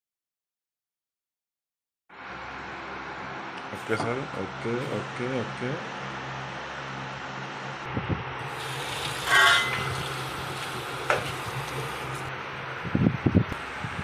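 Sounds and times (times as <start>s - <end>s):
water running from a tap: 8.4s - 12.3s.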